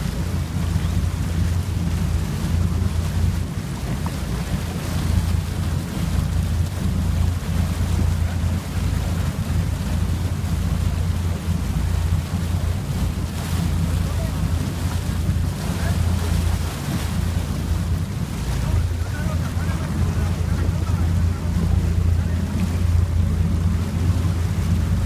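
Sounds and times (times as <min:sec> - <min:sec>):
boat engine rumbling: 0:00.0 - 0:25.0
water rushing in wake: 0:00.0 - 0:25.0
wind buffeting microphone: 0:00.0 - 0:25.0.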